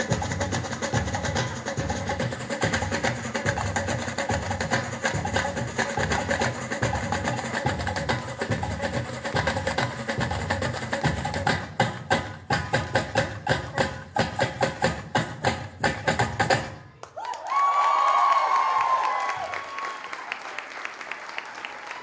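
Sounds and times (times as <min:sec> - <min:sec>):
tabla drum solo: 0:00.0 - 0:16.8
samba percussion: 0:00.0 - 0:16.9.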